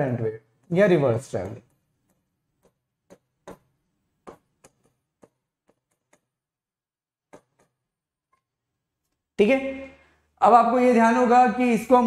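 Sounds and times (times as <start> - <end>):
stylus tapping on screen: 0.5 - 6.6, 7.2 - 9.3.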